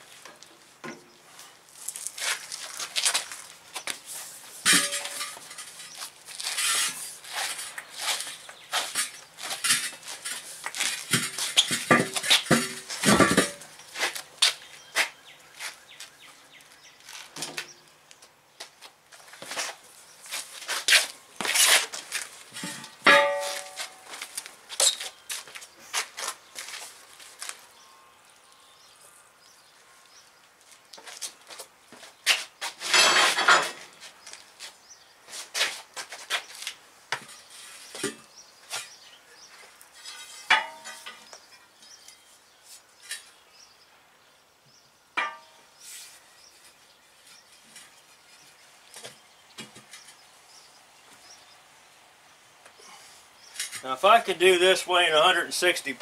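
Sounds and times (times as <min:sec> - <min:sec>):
tire irons clanking on wheel rim: 0:04.6 - 0:07.0, 0:08.9 - 0:13.7, 0:22.5 - 0:24.0, 0:40.0 - 0:41.3.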